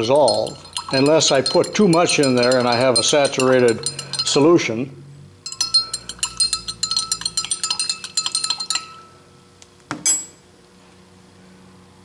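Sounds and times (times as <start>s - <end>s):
teaspoon clinking against glass: 0.0s - 4.7s, 5.4s - 9.2s.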